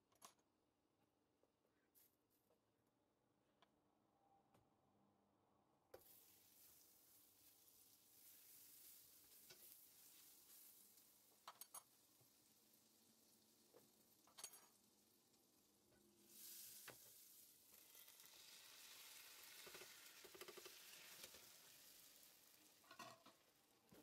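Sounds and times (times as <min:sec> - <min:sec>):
butter sizzling in frying pan: 0:06.0 - 0:24.0.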